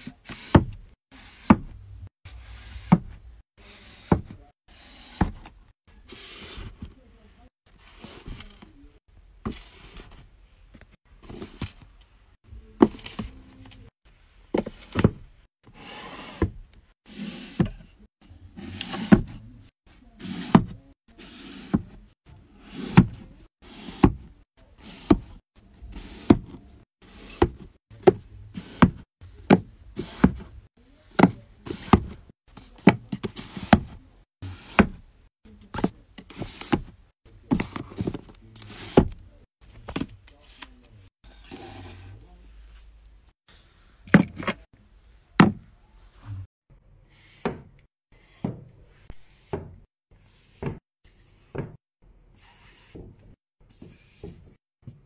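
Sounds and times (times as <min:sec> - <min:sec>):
books knocking on wooden shelf: 0:02.8 - 0:03.2, 0:04.0 - 0:04.4, 0:27.3 - 0:30.5, 0:31.2 - 0:35.0, 0:45.4 - 0:45.7.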